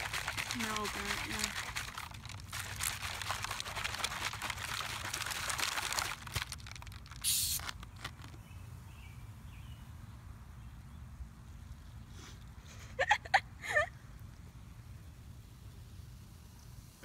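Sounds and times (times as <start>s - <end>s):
candy rattling in shaken bottle: 0.0s - 8.4s
bottle foam hissing: 7.2s - 7.8s.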